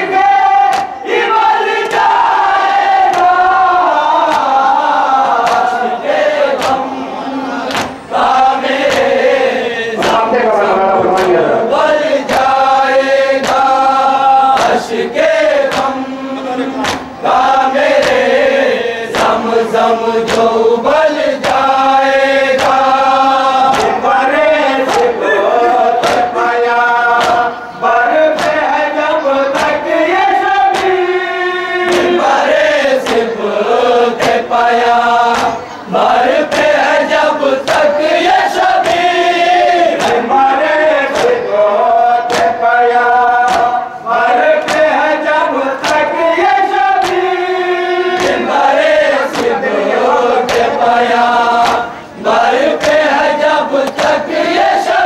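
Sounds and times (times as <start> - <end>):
men chanting together: 0.0 - 55.0
chest-beating slaps: 0.7 - 1.0, 3.0 - 3.4, 4.2 - 4.6, 5.3 - 5.8, 6.5 - 6.9, 7.6 - 9.2, 12.2 - 12.6, 13.4 - 14.9, 15.6 - 16.0, 16.8 - 17.2, 17.9 - 18.4, 19.1 - 19.4, 20.2 - 20.6, 22.6 - 22.9, 23.6 - 24.0, 24.8 - 25.2, 26.0 - 26.4, 27.1 - 27.6, 28.3 - 28.6, 29.5 - 29.8, 30.7 - 31.0, 31.9 - 32.2, 33.0 - 33.3, 34.2 - 34.5, 35.3 - 35.6, 37.6 - 37.9, 39.9 - 40.3, 41.1 - 41.4, 42.2 - 42.6, 43.4 - 43.9, 44.6 - 45.0, 45.8 - 46.1, 47.0 - 47.3, 48.2 - 48.5, 49.2 - 49.6, 50.4 - 50.8, 51.6 - 52.0, 52.7 - 53.2.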